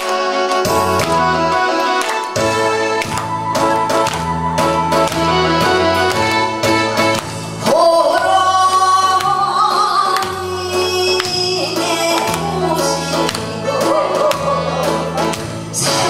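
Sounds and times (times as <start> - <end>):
amplified backing track: 0.0 - 16.0
man singing: 11.0 - 16.0.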